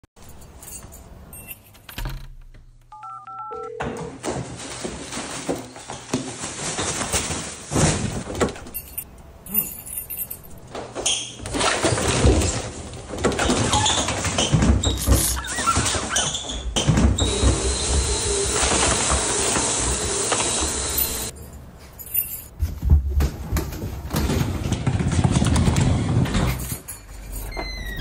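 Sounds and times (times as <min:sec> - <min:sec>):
keypad beeps: 0:02.9 - 0:03.8
clattering knocking and rustling: 0:22.2 - 0:27.6.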